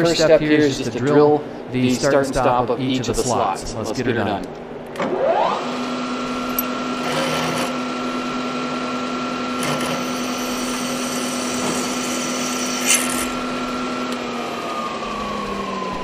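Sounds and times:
milling machine motor whining: 0:05.0 - 0:16.0
drill boring metal: 0:05.7 - 0:15.8.

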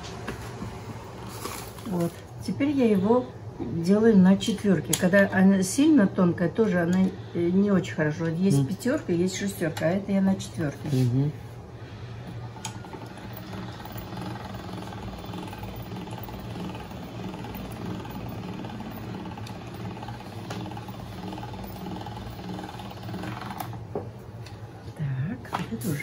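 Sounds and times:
pasta machine whirring: 0:00.0 - 0:02.4, 0:08.5 - 0:24.7.

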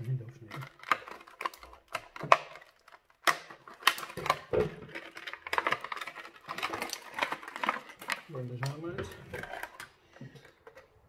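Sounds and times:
plastic packaging crackling: 0:00.0 - 0:11.0.

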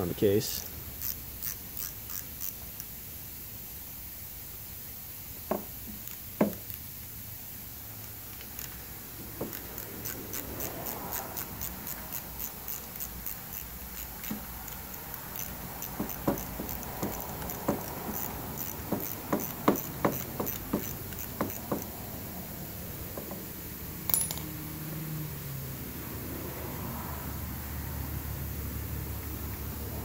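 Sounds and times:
ratchet wrench clicking: 0:00.9 - 0:03.0, 0:05.5 - 0:06.9, 0:07.9 - 0:22.0, 0:24.0 - 0:24.6
sharp metal clinks: 0:24.0 - 0:24.7.

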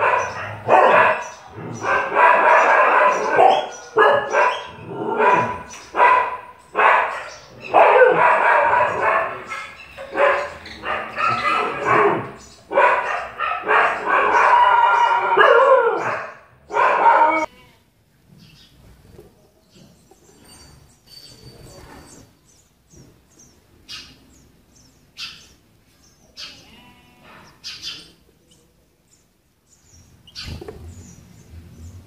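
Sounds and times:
dog barking: 0:00.0 - 0:17.5.

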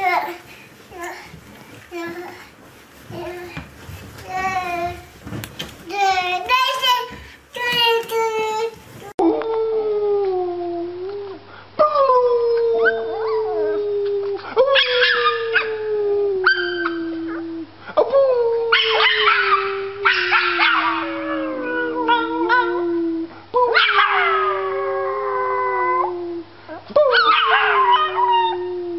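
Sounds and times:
puppy howling: 0:18.7 - 0:26.2, 0:27.0 - 0:28.9
man howling: 0:19.6 - 0:26.5.

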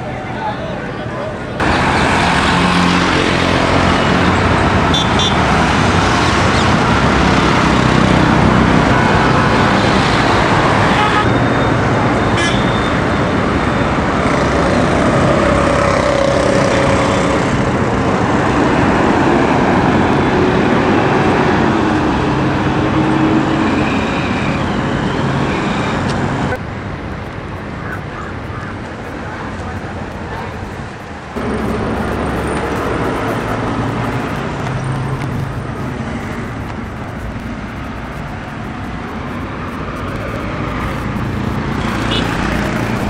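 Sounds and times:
passing traffic din: 0:00.0 - 0:43.0.

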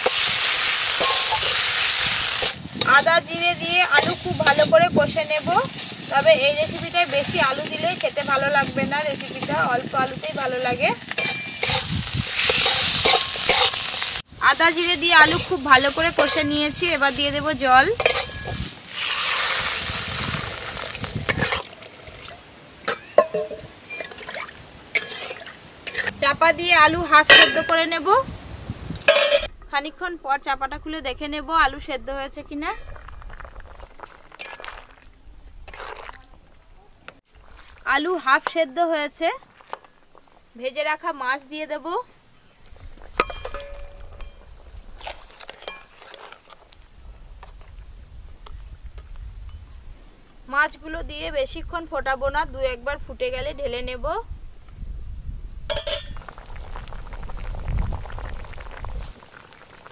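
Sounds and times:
metal spatula scraping a pan: 0:00.0 - 0:03.2, 0:11.0 - 0:14.1, 0:15.2 - 0:17.2, 0:18.0 - 0:19.6, 0:20.8 - 0:21.7, 0:22.9 - 0:26.2
water splashing into a hot pan: 0:00.0 - 0:26.1, 0:32.4 - 0:36.4, 0:55.7 - 0:59.9.

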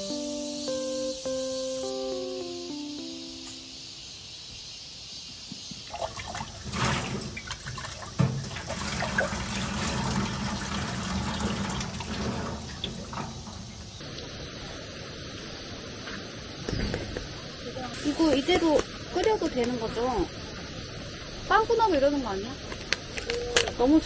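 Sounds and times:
water running from hose splashing: 0:05.8 - 0:14.0.

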